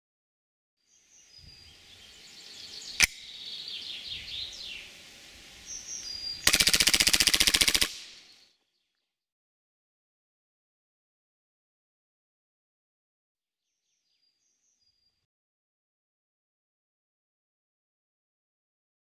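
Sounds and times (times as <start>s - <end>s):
birds chirping: 0.9s - 9.0s
rapid full-auto burst: 6.4s - 8.1s.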